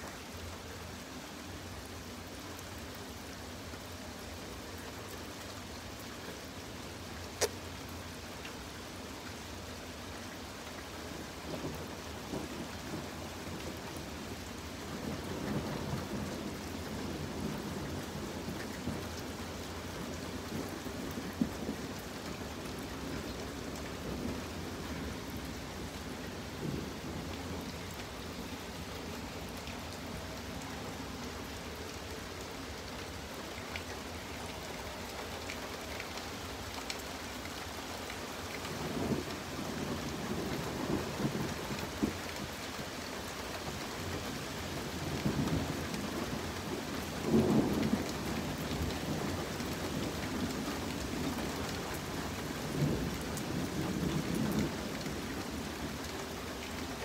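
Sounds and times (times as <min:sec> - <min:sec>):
steady rain: 0:00.0 - 0:57.0
thunder rumbles: 0:20.0 - 0:31.2, 0:38.6 - 0:42.2, 0:44.2 - 0:55.9.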